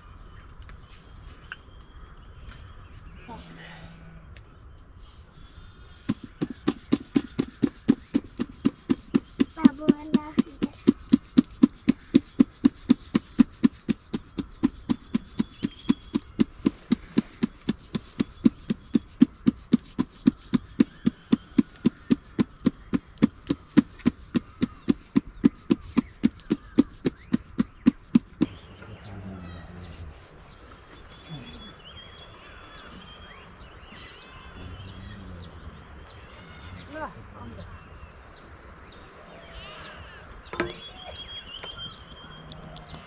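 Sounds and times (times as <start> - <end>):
rhythmic dull knocking: 6.1 - 29.0
faint animal call: 31.2 - 31.8, 33.9 - 37.6.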